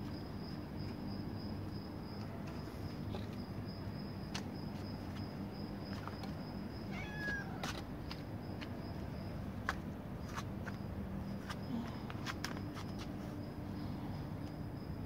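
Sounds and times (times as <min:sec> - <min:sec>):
cat meowing: 0:06.9 - 0:07.7.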